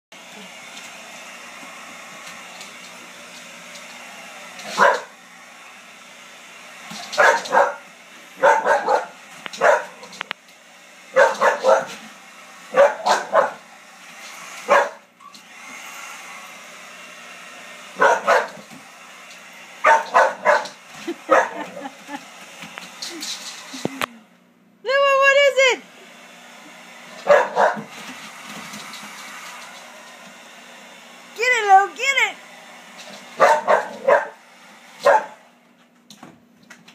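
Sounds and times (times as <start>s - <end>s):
hair dryer blowing hum: 0.2s - 24.3s, 24.9s - 35.7s
dog barking: 4.7s - 5.1s, 7.2s - 7.8s, 8.4s - 10.1s, 11.1s - 12.0s, 12.7s - 13.6s, 14.7s - 15.0s, 18.0s - 18.6s, 19.8s - 21.7s, 27.2s - 27.9s, 33.4s - 34.4s, 35.0s - 35.4s.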